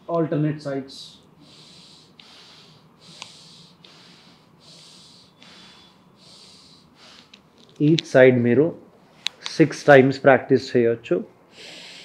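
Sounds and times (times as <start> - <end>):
person breathing through nose: 1.4 - 7.4, 11.5 - 12.0.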